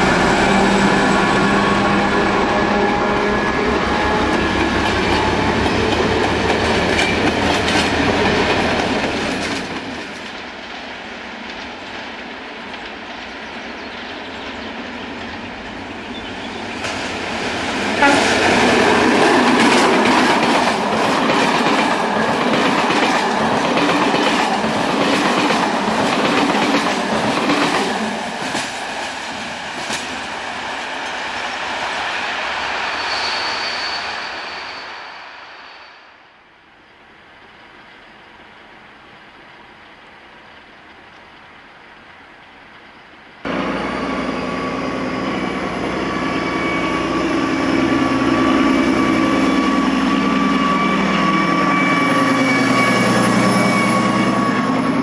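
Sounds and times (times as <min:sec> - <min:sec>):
train passing close by: 0:00.0 - 0:55.0
train wheels clacking over rail joints: 0:04.1 - 0:14.4, 0:18.0 - 0:31.5.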